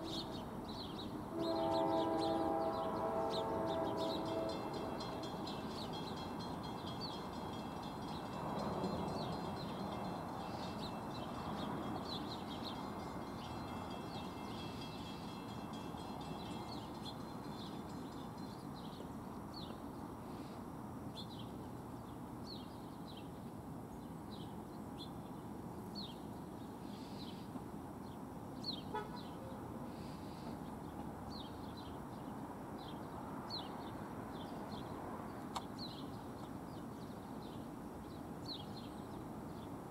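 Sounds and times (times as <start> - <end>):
bird chirping: 0.0 - 19.8
outdoor background noise: 0.0 - 39.9.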